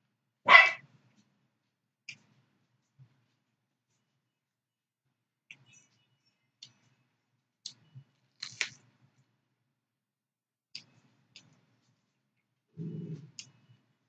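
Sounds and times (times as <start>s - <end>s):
crunching raw vegetables: 7.6s - 8.9s.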